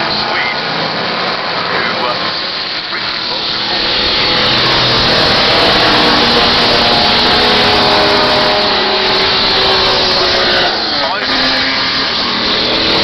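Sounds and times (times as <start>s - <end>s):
racing cars accelerating past: 0.0s - 13.0s.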